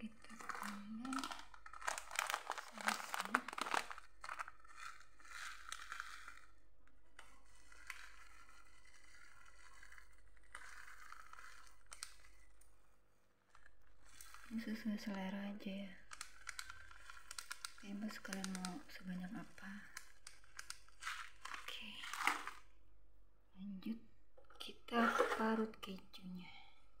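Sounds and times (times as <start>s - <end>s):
plastic packet crinkling: 0.0s - 6.6s, 7.2s - 12.7s, 13.5s - 15.1s, 15.9s - 22.7s
packet rustling as shaken: 0.2s - 6.5s, 16.0s - 22.6s.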